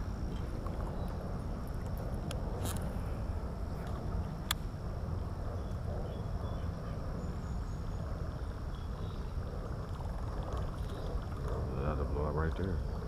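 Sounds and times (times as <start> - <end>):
outdoor rumble on microphone: 0.0 - 13.0.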